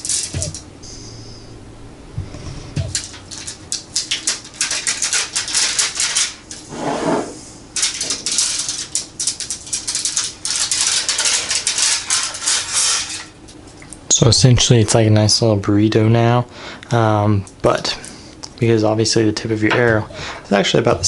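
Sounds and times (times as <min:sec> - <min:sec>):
aluminium foil crinkling: 0:00.0 - 0:00.6, 0:02.9 - 0:06.6, 0:07.8 - 0:13.9.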